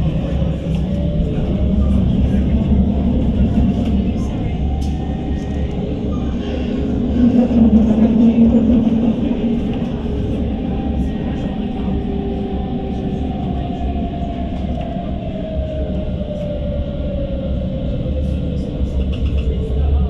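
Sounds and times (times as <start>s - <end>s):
tram motor whine: 0.0s - 20.0s
tram rumbling on rails: 0.0s - 20.0s.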